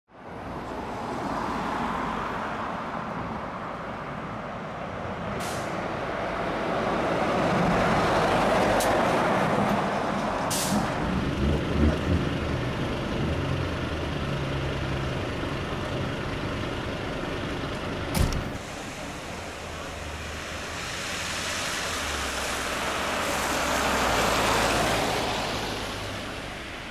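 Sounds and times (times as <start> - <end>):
fire engine driving past: 4.3 - 26.9
air brake hisses: 5.4 - 5.8, 10.5 - 10.8
diesel engine running: 9.9 - 23.5.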